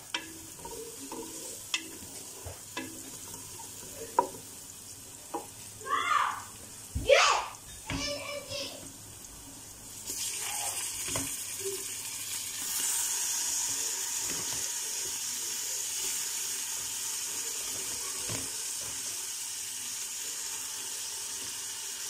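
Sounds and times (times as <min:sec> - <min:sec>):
wooden spoon knocking pot: 0:00.0 - 0:04.5
meat sizzling in hot fat: 0:00.0 - 0:22.0.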